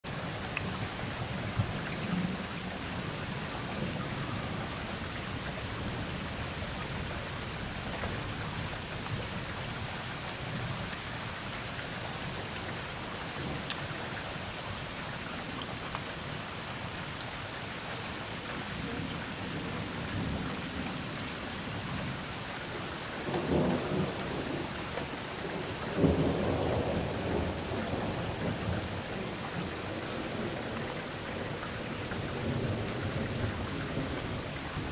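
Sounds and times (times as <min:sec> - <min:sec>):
steady rain: 0:00.0 - 0:34.9
thunder rumbling: 0:23.2 - 0:34.9.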